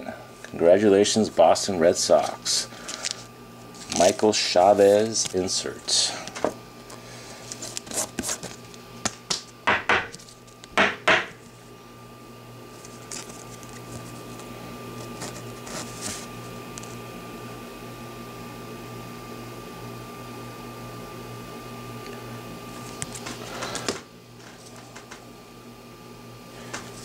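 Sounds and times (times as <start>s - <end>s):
faint steady hum: 0.0s - 27.0s
cards rustling: 2.1s - 8.8s, 12.8s - 16.3s.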